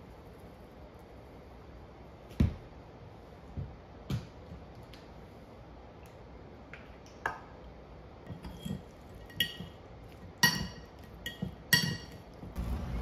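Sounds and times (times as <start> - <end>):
kitchenware clinking: 8.3 - 9.8, 10.4 - 12.4.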